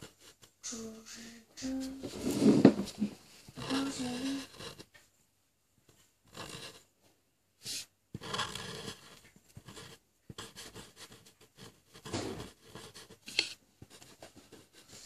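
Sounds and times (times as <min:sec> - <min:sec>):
marker scraping on paper: 0:01.6 - 0:04.9, 0:06.3 - 0:06.9, 0:07.6 - 0:15.0.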